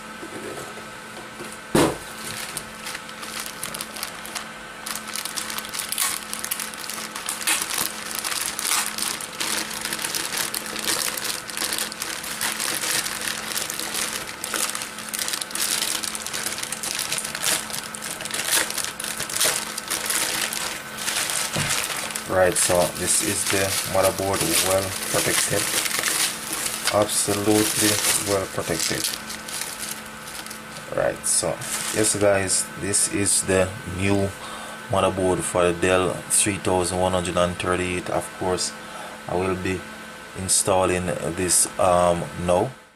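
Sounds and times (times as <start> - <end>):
plastic bags crinkling: 2.0 - 32.2.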